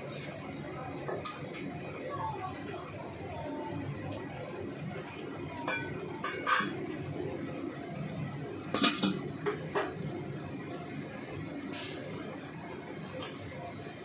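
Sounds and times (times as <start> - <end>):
metal cookware clinking: 5.7 - 6.8, 8.8 - 9.9
metal lid clanking onto wok: 5.7 - 6.8, 8.8 - 9.9.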